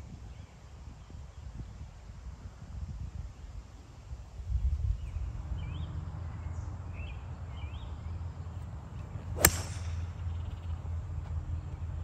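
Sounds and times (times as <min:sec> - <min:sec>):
low wind rumble: 0:00.0 - 0:12.0
golf club striking ball: 0:09.4 - 0:10.5.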